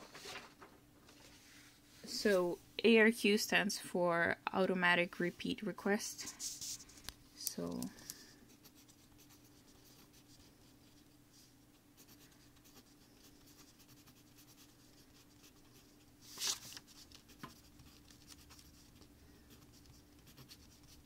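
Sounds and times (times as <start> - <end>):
faint steady hum: 0.0 - 21.0
pen scratching on paper: 8.5 - 11.0, 12.0 - 15.9, 17.3 - 21.0.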